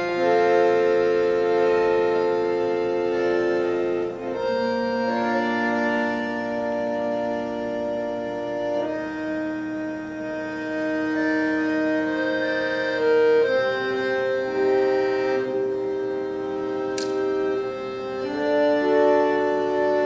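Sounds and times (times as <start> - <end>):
accordion playing slow chords: 0.0 - 20.0.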